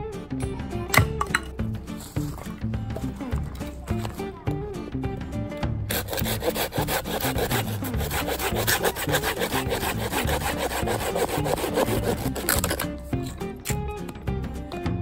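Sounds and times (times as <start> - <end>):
hand saw cutting wood: 5.9 - 13.4.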